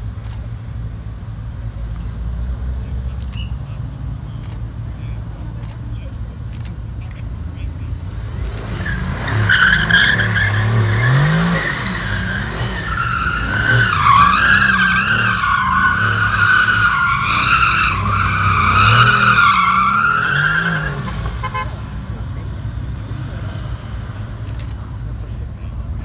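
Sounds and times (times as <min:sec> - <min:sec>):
car engine revving: 0:05.5 - 0:26.0
tyres squealing: 0:08.4 - 0:22.0.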